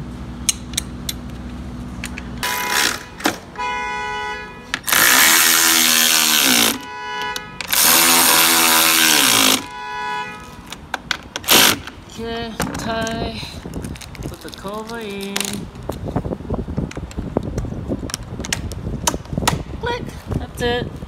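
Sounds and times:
power ratchet driving bolts: 4.8 - 6.8.

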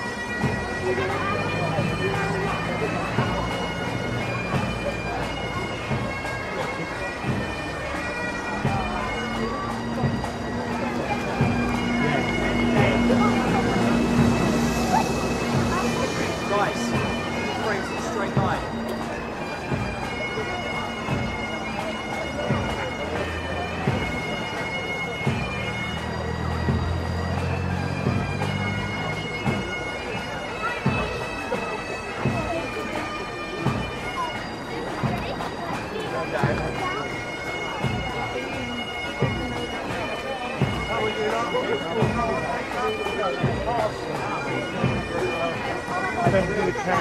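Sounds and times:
bagpipe drones: 0.0 - 47.0
bagpipes playing a tune: 0.0 - 47.0
sharp drum beats: 8.6 - 19.9.

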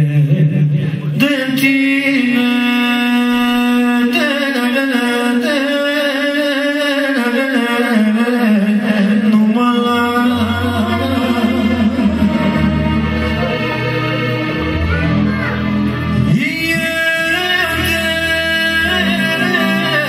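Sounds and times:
man singing into a microphone: 0.0 - 20.0
low musical accompaniment: 9.4 - 20.0.

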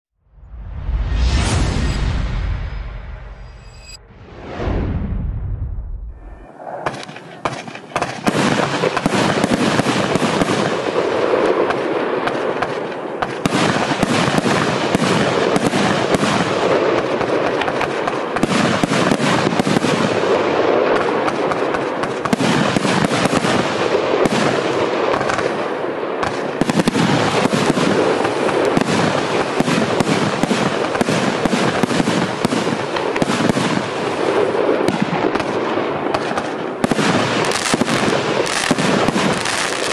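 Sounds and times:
fireworks barrage launching and bursting: 6.0 - 39.9.

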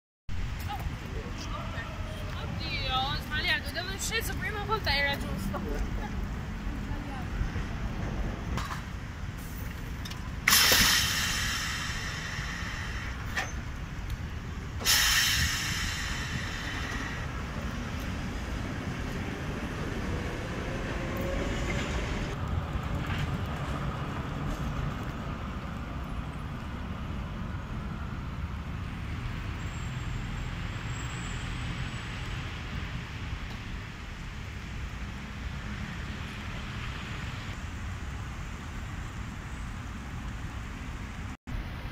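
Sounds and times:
electric tram running: 0.4 - 41.3
compressed air hisses: 10.5 - 13.8, 14.7 - 17.5.

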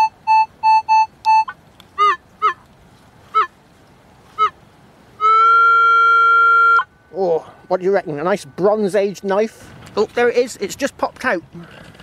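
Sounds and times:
metal detector beeping: 0.0 - 1.5
honking calls falling in pitch: 4.4 - 4.6, 5.2 - 7.2.

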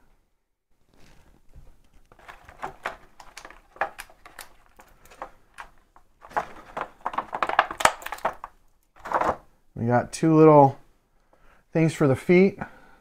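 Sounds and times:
plastic blister pack crinkling: 0.9 - 9.4.

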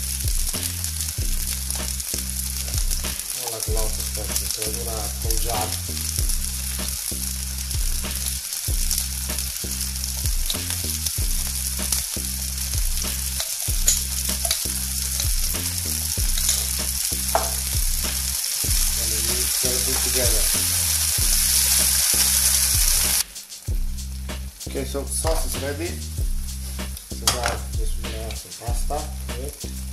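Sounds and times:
food sizzling in a frying pan: 0.0 - 29.9
spoon clicking and scraping: 13.4 - 15.3, 16.3 - 17.6.

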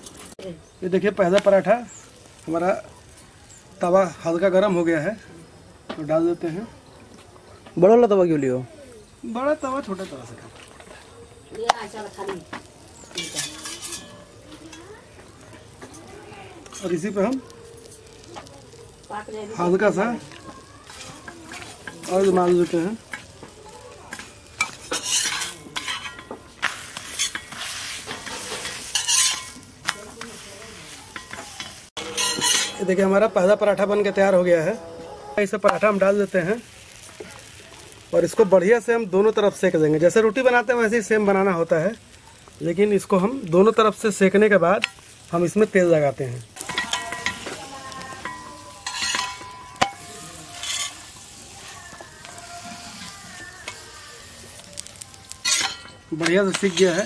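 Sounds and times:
flatbread sizzling in oil: 0.0 - 57.0
steel spatula scraping pan: 13.1 - 14.8, 20.8 - 23.4, 24.1 - 36.0, 46.6 - 57.0.

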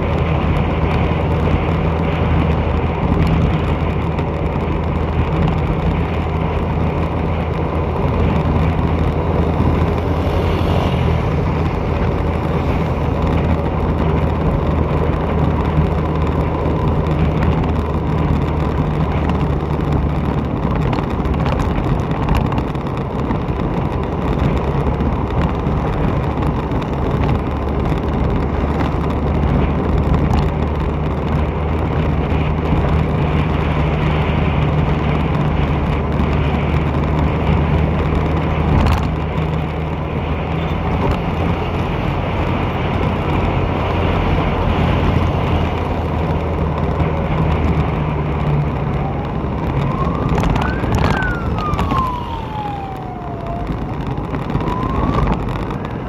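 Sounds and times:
vehicle engine hum: 0.0 - 56.0
wind and road noise: 0.0 - 56.0
siren wailing: 48.7 - 56.0.

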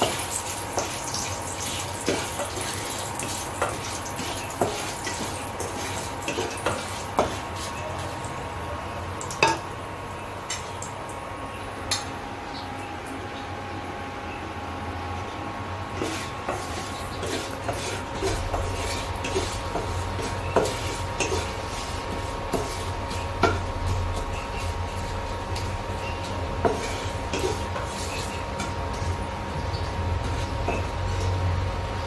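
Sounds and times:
spatula scraping and tapping pan: 0.0 - 7.9, 15.9 - 31.4
spices sizzling in oil: 0.0 - 11.2, 15.9 - 32.0
induction cooktop whine and hum: 0.0 - 32.0.

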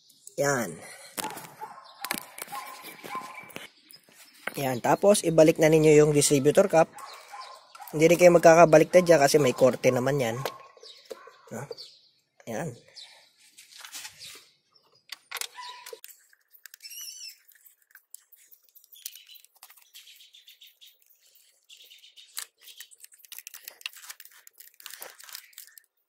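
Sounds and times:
bird chirping: 0.0 - 23.8
wires rustling: 1.2 - 4.8, 5.6 - 11.7, 15.1 - 26.0
plastic clicks and rattles: 15.1 - 20.0, 22.2 - 26.0.

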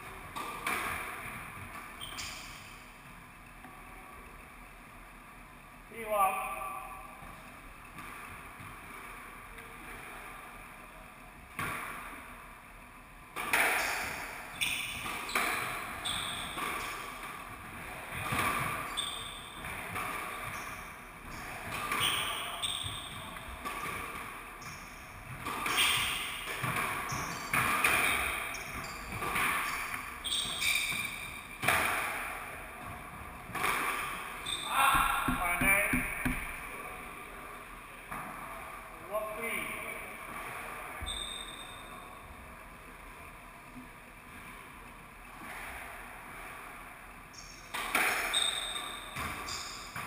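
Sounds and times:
squash ball hitting rackets and walls: 0.0 - 2.9, 7.1 - 10.7, 11.4 - 12.4, 13.3 - 37.0, 45.3 - 50.0
shoes squeaking on wooden floor: 2.0 - 2.6, 14.5 - 17.0, 18.2 - 23.6, 24.6 - 31.5, 34.4 - 36.7, 41.0 - 41.7, 48.2 - 50.0.

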